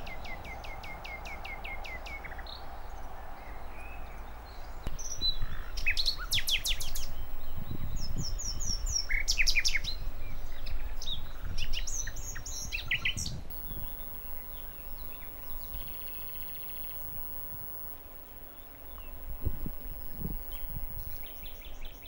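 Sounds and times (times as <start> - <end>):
small birds singing and calling: 0.0 - 22.0
soft buzzy trill: 13.5 - 21.8.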